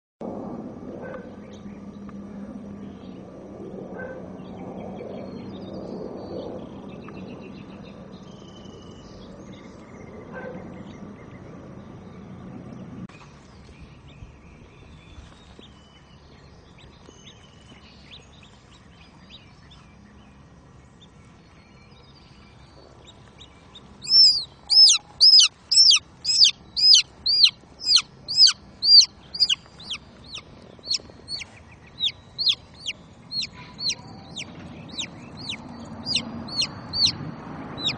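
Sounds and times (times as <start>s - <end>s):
baby chick peeping: 23.0s - 37.2s.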